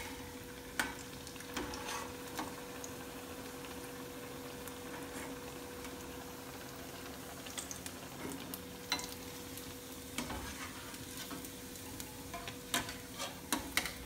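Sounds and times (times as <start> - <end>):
food sizzling in hot oil: 0.0 - 14.0.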